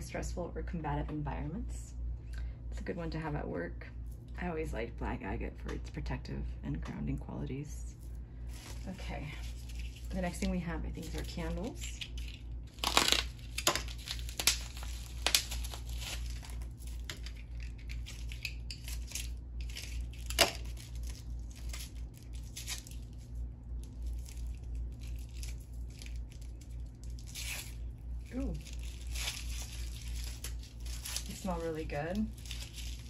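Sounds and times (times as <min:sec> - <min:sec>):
wrapping tearing and crinkling: 0:08.4 - 0:33.0.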